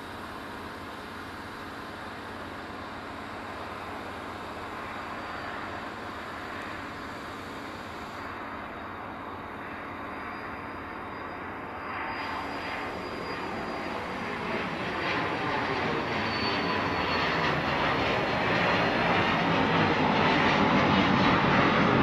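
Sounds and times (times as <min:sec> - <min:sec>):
jet taking off: 0:08.2 - 0:22.0.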